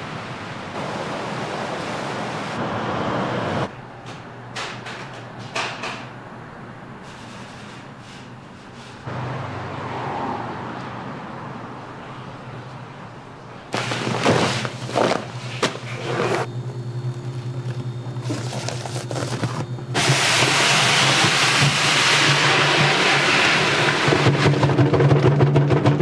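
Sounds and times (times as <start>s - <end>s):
low machine hum: 16.4s - 20.9s
plastic bag crinkling: 18.2s - 19.6s
rice pouring into hopper: 20.0s - 24.8s.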